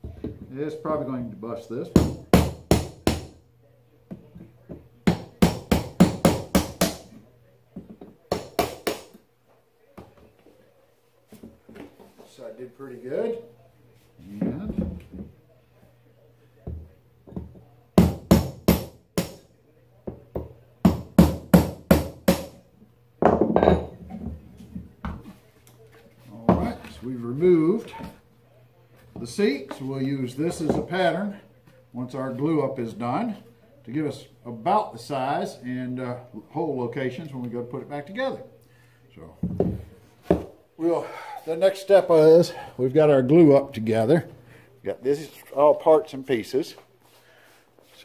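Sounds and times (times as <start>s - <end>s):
hammer striking chisel on wood: 1.9s - 3.4s, 5.0s - 7.1s, 8.3s - 9.2s, 17.4s - 19.4s, 20.4s - 22.6s.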